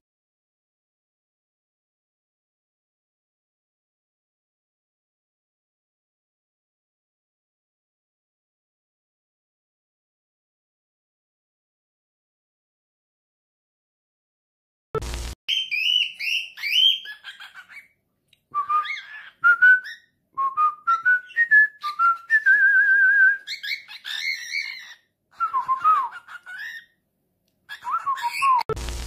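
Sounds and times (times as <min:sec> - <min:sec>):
bird whistling and chirping: 0:15.5 - 0:17.9, 0:18.5 - 0:26.9, 0:27.7 - 0:28.7.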